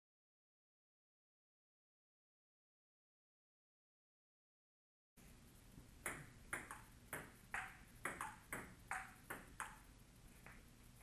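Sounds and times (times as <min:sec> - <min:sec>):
table tennis ball pinging: 0:05.8 - 0:10.7.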